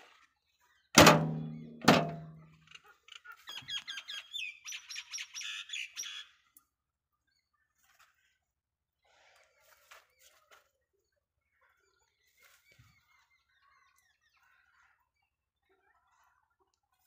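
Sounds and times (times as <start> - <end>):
metallic clangs: 1.0 - 2.4
bird chirping and trilling: 2.7 - 6.3.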